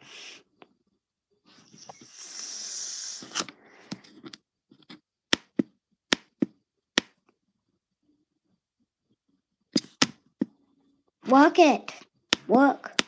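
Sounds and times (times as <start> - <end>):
sharp clicks or taps: 5.3 - 7.3.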